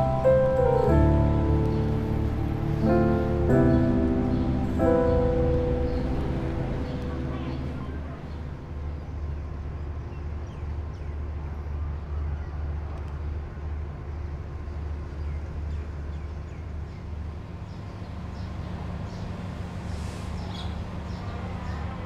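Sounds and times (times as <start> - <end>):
steady low rumble: 0.0 - 10.6.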